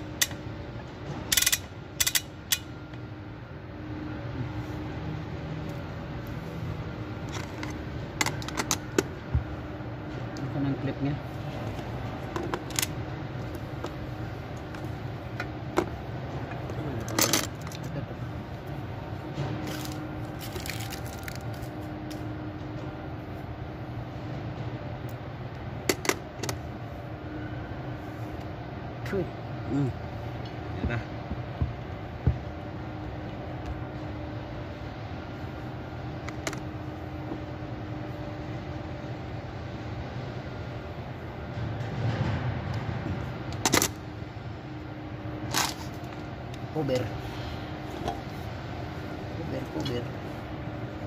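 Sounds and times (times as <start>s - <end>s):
steady low hum: 0.0s - 51.0s
sharp metallic click: 1.3s - 2.7s.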